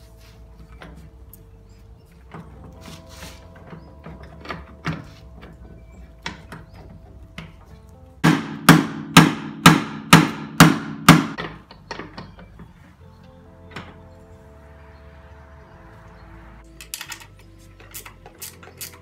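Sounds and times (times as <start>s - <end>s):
faint background music: 0.0s - 19.0s
hammer striking metal: 8.2s - 12.3s.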